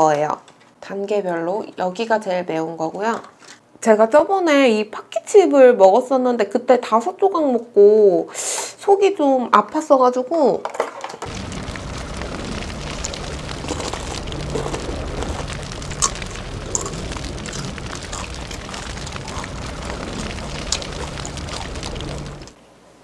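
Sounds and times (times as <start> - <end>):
fire rushing and crackling: 11.2 - 22.6.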